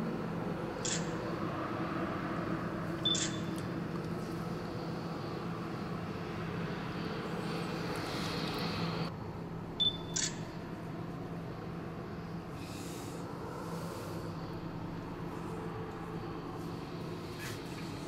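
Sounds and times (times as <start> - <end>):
low background hum: 0.0 - 18.0
camera shutter clicks: 0.8 - 1.1, 3.1 - 3.4, 10.1 - 10.4.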